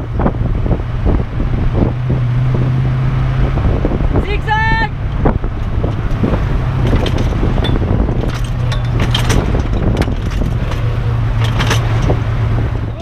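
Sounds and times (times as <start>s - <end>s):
vehicle engine and tyre rumble: 0.0s - 13.0s
wind: 0.0s - 13.0s
light clicks and rattles: 5.6s - 12.2s.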